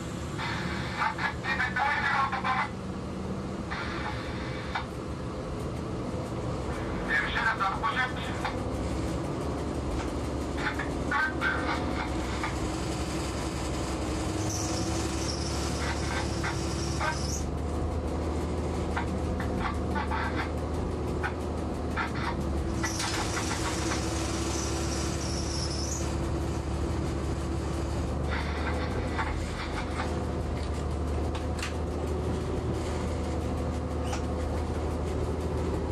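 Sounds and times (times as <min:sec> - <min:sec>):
locomotive engine drone: 0:00.0 - 0:35.9
wheels clicking on track: 0:04.8 - 0:35.9
high-pitched squeal: 0:14.3 - 0:17.4, 0:22.8 - 0:26.2.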